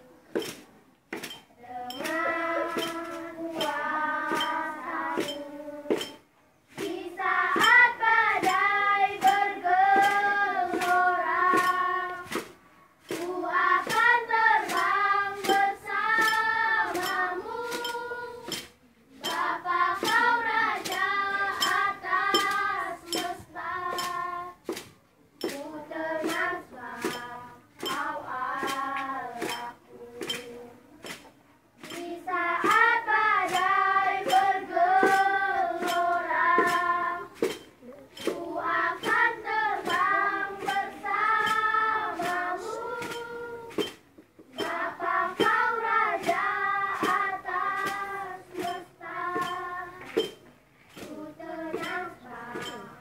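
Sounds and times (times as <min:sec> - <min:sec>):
sharp taps keeping a beat: 0:00.1 - 0:53.0
children singing in unison: 0:01.2 - 0:53.0.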